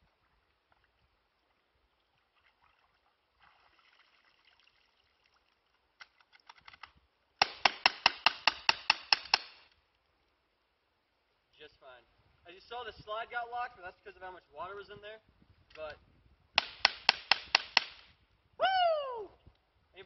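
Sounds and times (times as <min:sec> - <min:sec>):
faint water splashing: 0:00.0 - 0:06.4
airsoft pistol shots: 0:07.4 - 0:09.6, 0:16.6 - 0:18.1.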